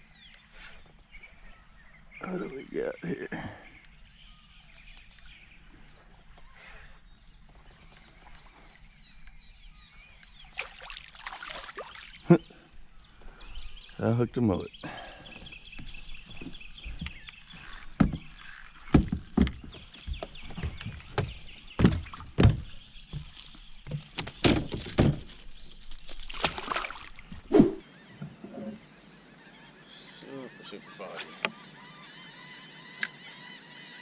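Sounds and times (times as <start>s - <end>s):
fish splashing in water: 10.5s - 12.3s, 23.9s - 27.8s.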